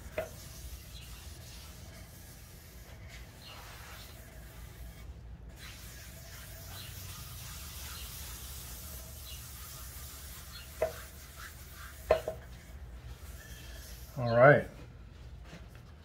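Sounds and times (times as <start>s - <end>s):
paper towel rubbing on wood: 0.0s - 14.4s.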